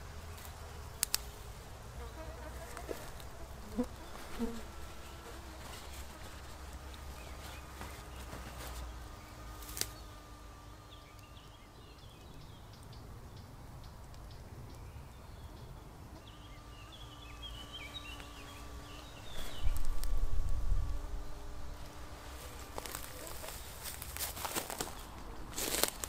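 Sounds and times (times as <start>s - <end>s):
birds chirping: 0.0s - 20.0s
faint steady hum: 0.0s - 26.0s
wind rumble on microphone: 19.3s - 21.6s.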